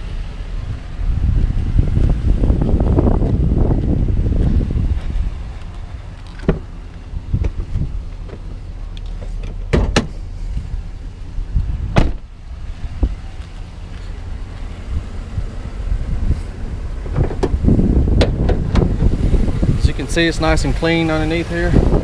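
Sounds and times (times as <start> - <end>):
steady low rumble: 0.0 - 22.0
van door slamming shut: 6.4 - 6.7, 9.4 - 10.2, 11.8 - 12.3, 17.1 - 19.0
hood clattering open: 17.0 - 19.0.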